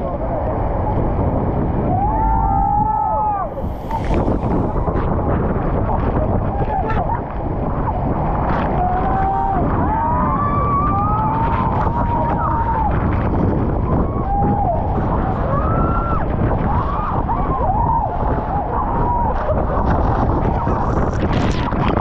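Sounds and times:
passengers screaming: 0:01.9 - 0:05.1, 0:08.6 - 0:21.0.

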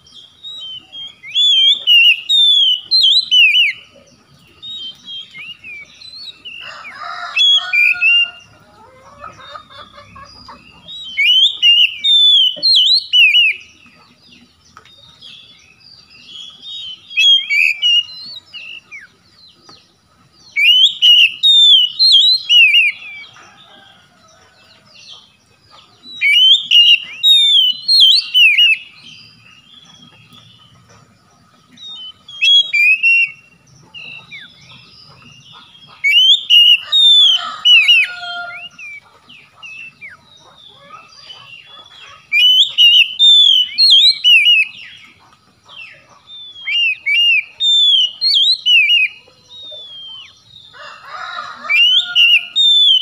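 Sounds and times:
bird singing whistled phrases: 0:00.0 - 0:03.9, 0:10.7 - 0:13.7, 0:16.4 - 0:19.1, 0:20.5 - 0:23.3, 0:26.1 - 0:29.0, 0:31.8 - 0:34.5, 0:35.5 - 0:39.0, 0:41.0 - 0:45.0, 0:46.4 - 0:50.4, 0:51.7 - 0:53.0
harsh bird call: 0:00.0 - 0:03.9, 0:04.5 - 0:13.7, 0:16.5 - 0:19.1, 0:20.5 - 0:24.0, 0:26.0 - 0:29.0, 0:31.8 - 0:45.0, 0:45.8 - 0:53.0.

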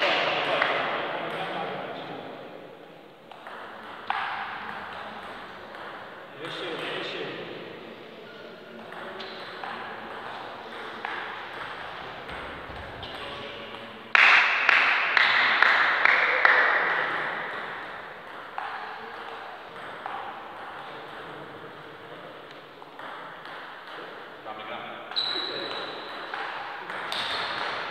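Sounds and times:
table tennis ball hits: 0:03.3 - 0:07.0, 0:08.8 - 0:24.3, 0:25.1 - 0:27.9.

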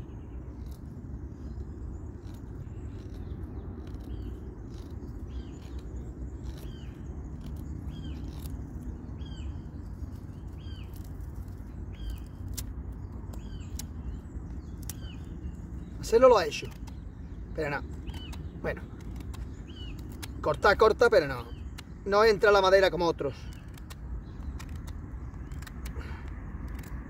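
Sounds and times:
bird chirping: 0:00.0 - 0:27.0
steady low rumble: 0:00.0 - 0:27.0
knife scraping a wooden stick: 0:00.4 - 0:17.0.

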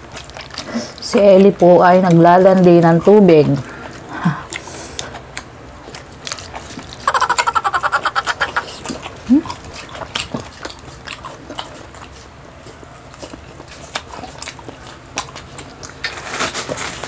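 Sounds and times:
chewing and lip-smacking: 0:00.0 - 0:17.0
mouth clicks: 0:06.3 - 0:09.6.

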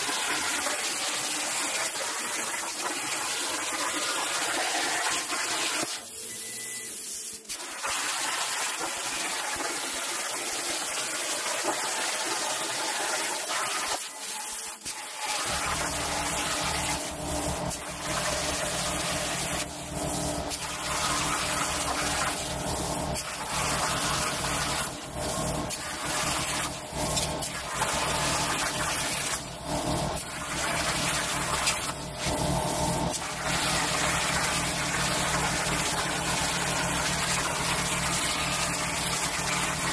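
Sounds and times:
plasma torch arc hissing: 0:13.4 - 0:39.8.

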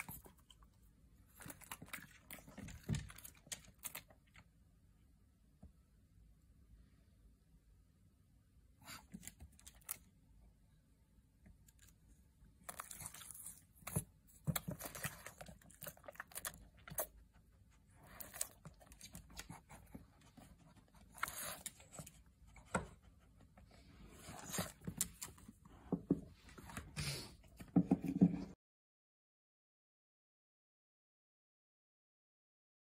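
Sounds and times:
dog crunching and chewing treat: 0:01.3 - 0:04.4, 0:12.6 - 0:17.3, 0:17.9 - 0:22.2, 0:24.2 - 0:25.5.

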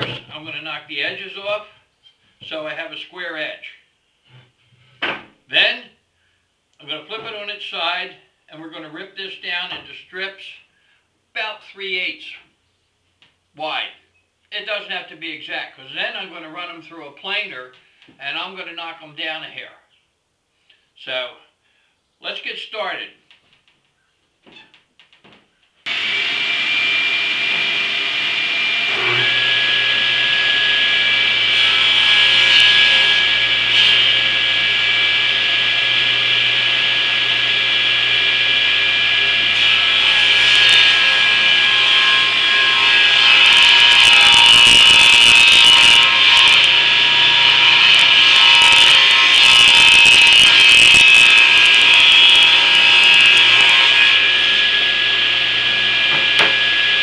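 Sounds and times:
table saw ripping wood: 0:00.0 - 0:00.4, 0:25.9 - 0:57.0.

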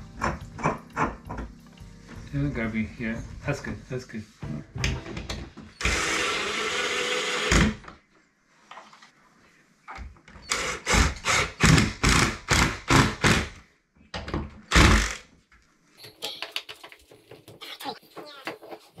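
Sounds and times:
cordless drill driving screws: 0:05.8 - 0:07.8, 0:10.5 - 0:12.7.

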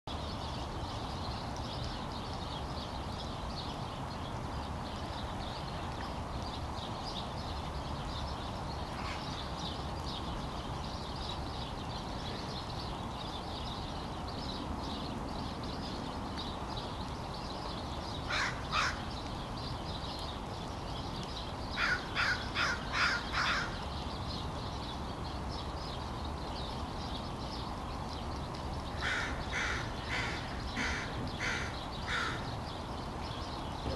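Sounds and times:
low background noise: 0:00.1 - 0:33.9
crows cawing: 0:18.3 - 0:19.1, 0:21.8 - 0:23.8, 0:29.0 - 0:32.5.

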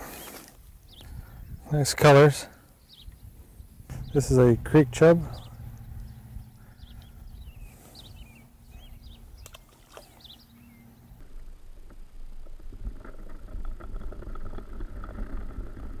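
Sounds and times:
low outdoor rumble: 0:02.5 - 0:16.0
bird chirping: 0:02.8 - 0:11.2
muffled underwater water noise: 0:03.9 - 0:16.0.

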